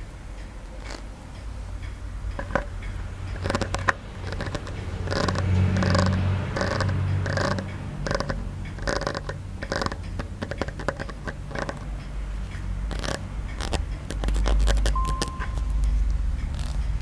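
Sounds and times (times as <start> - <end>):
sharp clicks: 0.0 - 17.0
scraping and rubbing strokes: 3.4 - 11.9, 12.9 - 17.0.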